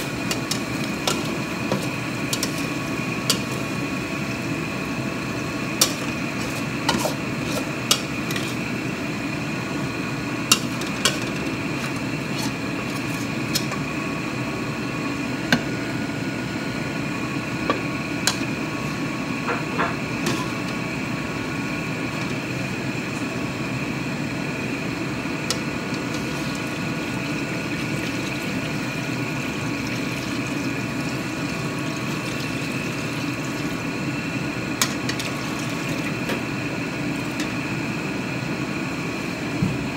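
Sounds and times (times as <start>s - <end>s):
steady background hum: 0.0s - 39.9s
metal spatula scraping wok: 0.3s - 3.6s, 5.8s - 8.6s.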